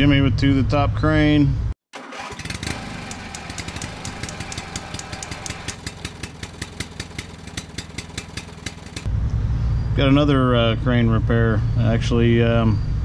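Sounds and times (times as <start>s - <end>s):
engine idling with ticking: 2.4s - 9.1s.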